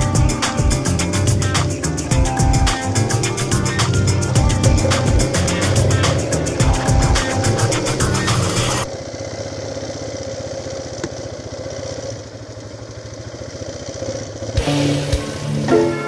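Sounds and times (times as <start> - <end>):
background music: 0.0 - 8.9, 14.6 - 16.0
quad bike engine running: 0.0 - 16.0.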